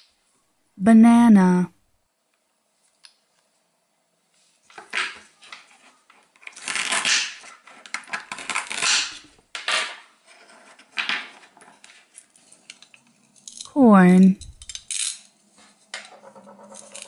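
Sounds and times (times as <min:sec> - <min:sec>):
wooden pieces clacking on board: 0:04.7 - 0:13.7
velcro tearing: 0:06.4 - 0:07.6, 0:08.3 - 0:09.3.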